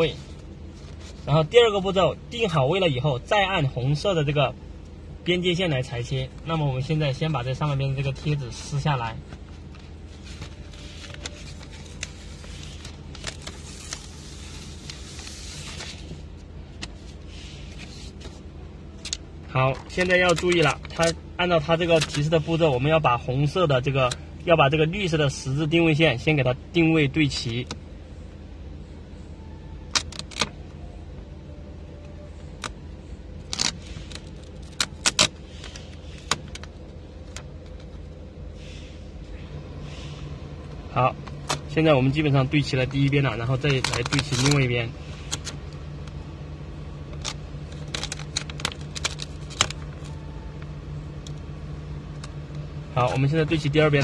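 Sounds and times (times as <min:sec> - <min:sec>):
steady low hum: 0:00.0 - 0:54.0
paper rustling and crinkling: 0:09.3 - 0:18.4, 0:43.4 - 0:44.6, 0:47.2 - 0:50.2.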